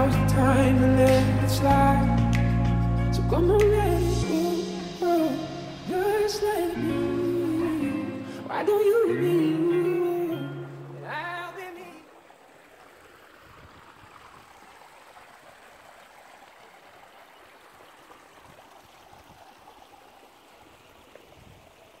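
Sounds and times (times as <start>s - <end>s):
song: 0.0s - 12.0s
stream trickling over rocks: 3.5s - 22.0s.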